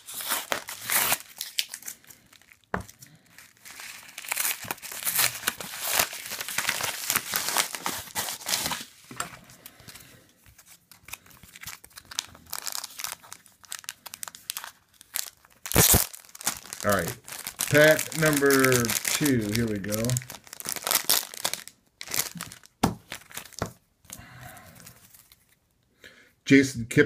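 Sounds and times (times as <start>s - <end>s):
paper envelope tearing: 0.0s - 2.0s, 3.6s - 9.0s, 10.9s - 23.6s
plastic sleeve crinkling: 0.0s - 25.7s.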